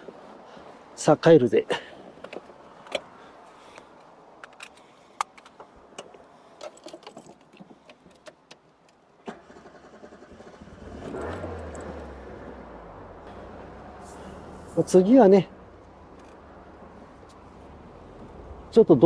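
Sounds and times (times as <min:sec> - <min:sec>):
keys jangling in ignition: 0:06.6 - 0:07.6, 0:11.1 - 0:12.1
car engine starting and running: 0:09.2 - 0:19.0.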